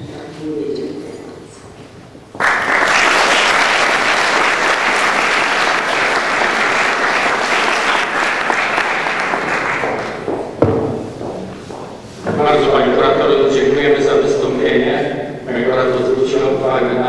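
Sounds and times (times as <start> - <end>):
audience applauding: 2.4 - 10.4.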